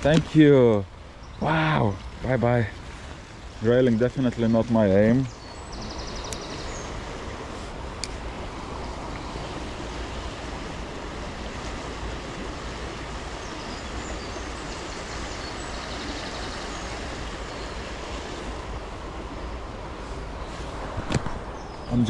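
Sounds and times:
river water rushing: 0.0 - 22.0
faint high bird chirps: 5.3 - 7.0.

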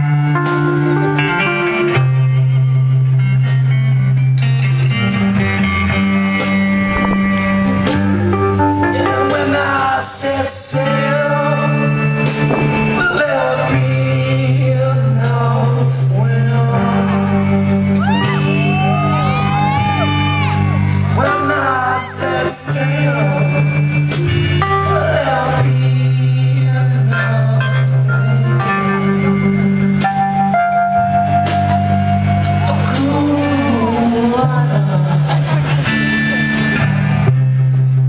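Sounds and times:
blues rock band playing: 0.0 - 38.0
distorted electric guitar: 0.0 - 38.0
sustained bass notes: 0.0 - 38.0
person singing: 7.6 - 18.8, 19.7 - 24.0, 24.6 - 29.4, 32.3 - 36.7.

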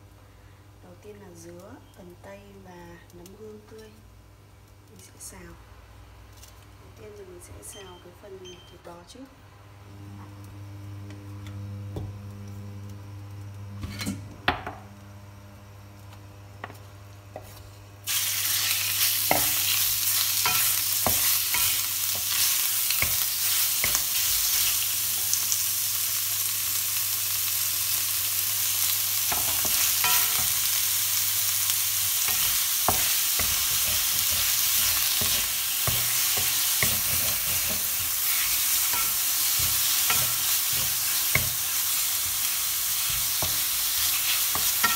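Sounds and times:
low steady hum: 0.0 - 25.7
meat sizzling in hot oil: 18.0 - 44.9.

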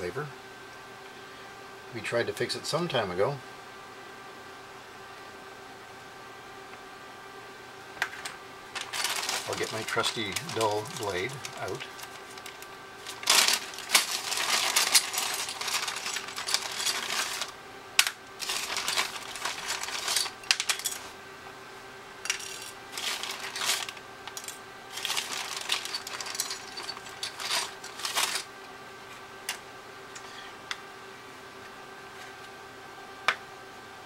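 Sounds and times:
metal hand tools clinking: 13.1 - 17.5, 18.4 - 21.0, 22.3 - 28.4.

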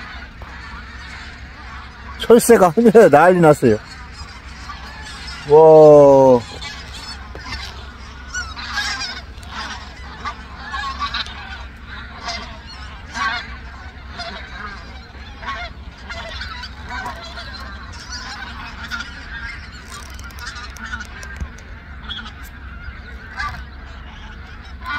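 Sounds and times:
geese honking in flight: 0.0 - 24.9.

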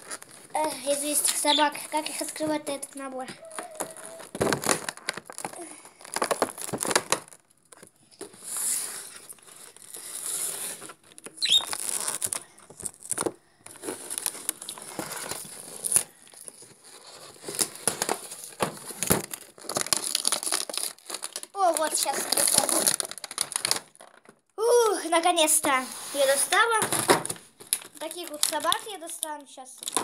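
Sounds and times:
plastic crinkling and rustling: 0.0 - 30.0
cardboard tearing: 3.5 - 7.4, 8.4 - 16.1, 16.8 - 24.2
short squeak: 11.4 - 11.8.

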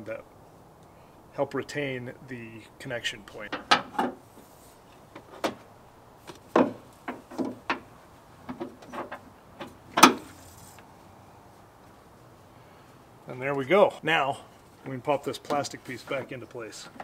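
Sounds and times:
clicks and knocks of metal fitting: 3.4 - 4.2.

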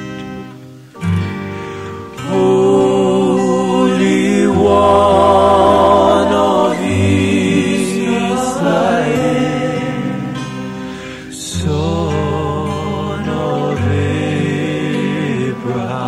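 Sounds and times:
sustained instrumental backing: 0.0 - 16.0
voices singing worship song: 1.5 - 16.0.

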